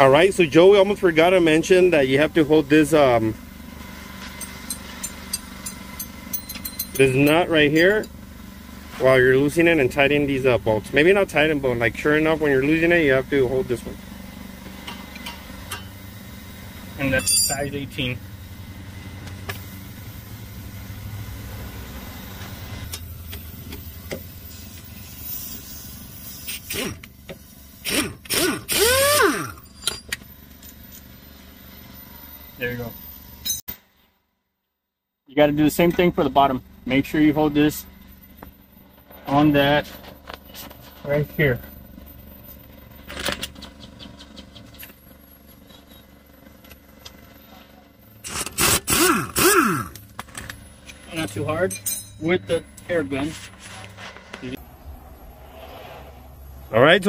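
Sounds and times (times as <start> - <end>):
pneumatic impact wrench bursts: 23.6 - 29.9, 48.2 - 50.4.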